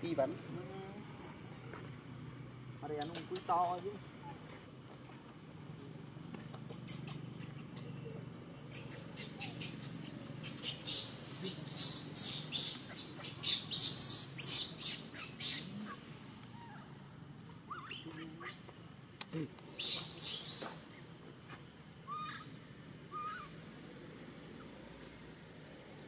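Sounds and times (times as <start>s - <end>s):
baby monkey screaming: 8.7s - 16.0s, 17.6s - 18.6s, 19.8s - 20.7s, 22.1s - 22.5s, 23.1s - 23.6s.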